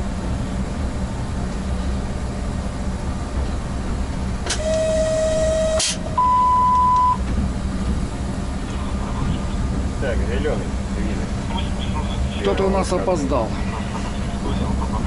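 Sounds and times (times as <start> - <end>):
locomotive cab rumble: 0.0 - 15.0
higher single tone: 4.5 - 7.2.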